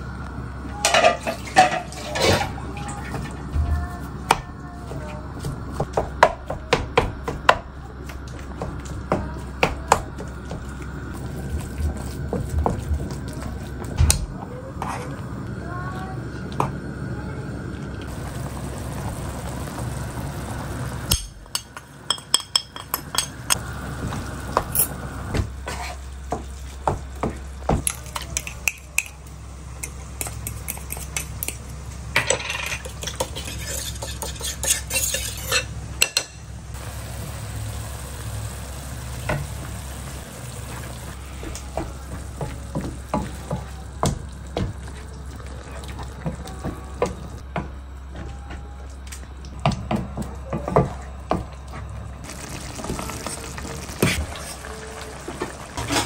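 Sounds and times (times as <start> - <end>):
meat frying in a pan: 18.1 - 21.6, 36.8 - 46.3, 52.2 - 56.0
spoon clinking and scraping bowl: 32.2 - 36.3.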